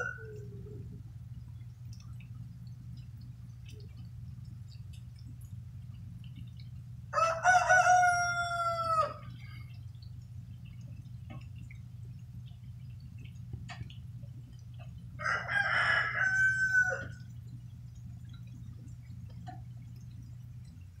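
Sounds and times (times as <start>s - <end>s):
rooster crowing: 0.0s - 0.8s, 7.1s - 9.3s, 15.2s - 17.3s
steady low hum: 0.0s - 21.0s.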